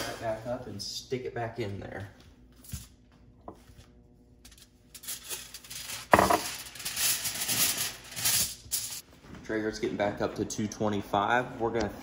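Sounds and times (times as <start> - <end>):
aluminium foil crinkling: 4.5 - 9.0.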